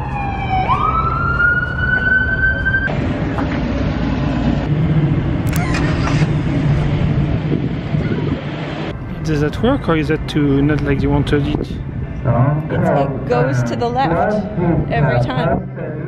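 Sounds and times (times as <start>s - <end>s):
siren wailing: 0.0s - 2.9s
low vehicle rumble: 0.0s - 16.0s
street noise: 0.0s - 16.0s.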